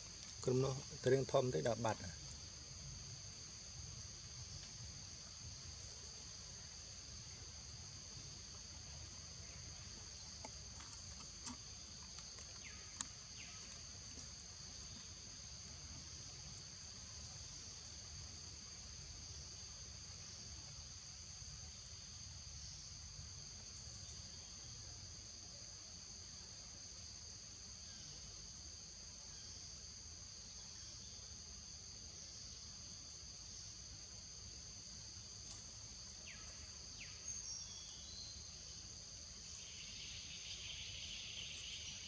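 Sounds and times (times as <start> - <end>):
insects droning: 0.0 - 42.0
faint clicks: 35.4 - 35.7.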